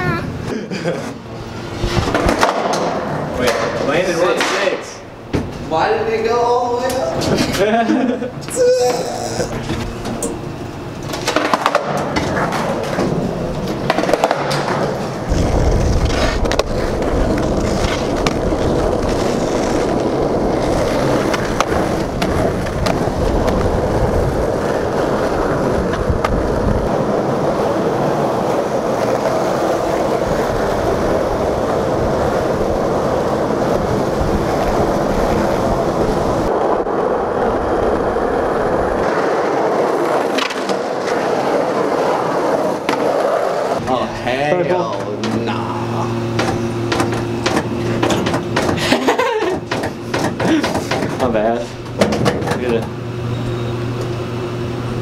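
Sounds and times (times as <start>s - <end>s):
skateboard wheels rolling on concrete: 0.0s - 55.0s
skateboard clacks: 1.8s - 4.8s, 11.0s - 37.3s, 38.0s - 43.8s, 46.3s - 53.0s.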